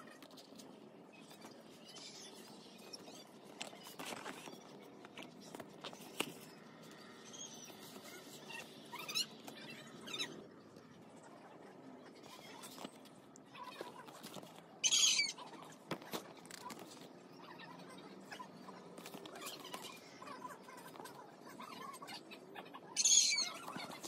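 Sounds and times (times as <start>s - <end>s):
cardboard and plastic rustling: 3.0s - 6.6s, 15.6s - 17.1s.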